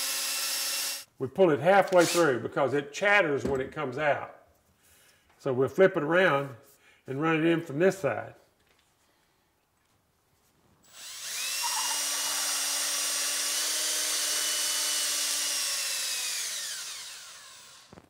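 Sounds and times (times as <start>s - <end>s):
cordless drill whining: 2.0s - 2.2s, 10.9s - 18.0s.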